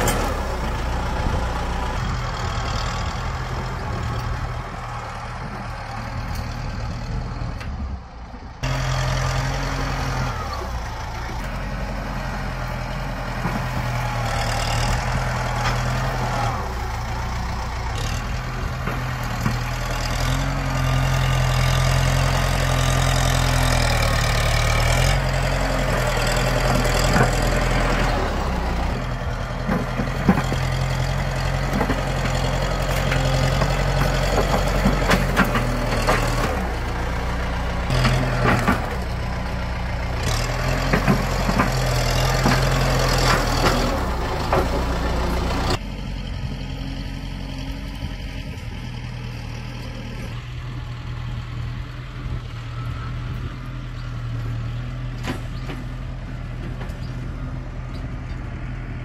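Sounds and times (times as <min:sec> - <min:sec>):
dozer blade pushing stump through soil: 0:00.0 - 0:04.4, 0:08.6 - 0:45.8
tractor diesel engine running: 0:00.0 - 0:59.0.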